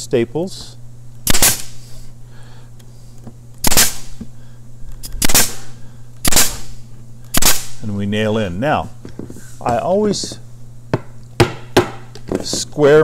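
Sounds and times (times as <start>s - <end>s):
stapler firing sharp crack: 1.2s - 1.8s, 3.6s - 4.2s, 5.1s - 7.8s.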